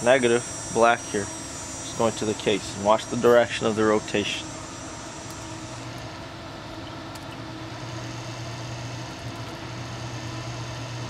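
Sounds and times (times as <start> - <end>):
electric motor humming: 0.0 - 11.0.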